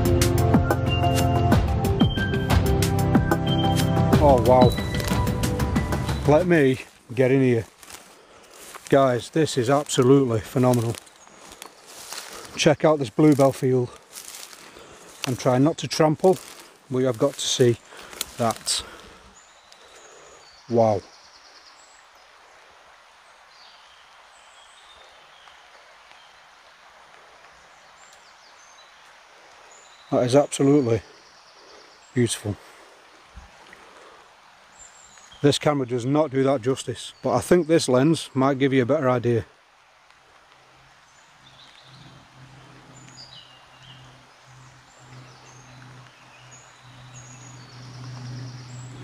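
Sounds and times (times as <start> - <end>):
birds singing: 0.0 - 49.0
high-pitched bird chirps: 4.6 - 5.2.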